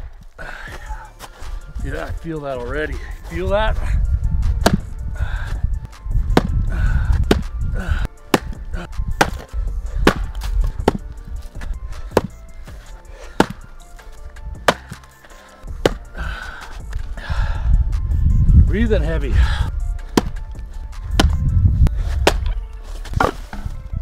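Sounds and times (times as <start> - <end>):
axe chopping firewood: 4.5 - 4.9, 6.3 - 13.8, 14.6 - 17.0, 20.0 - 21.4, 22.0 - 23.8.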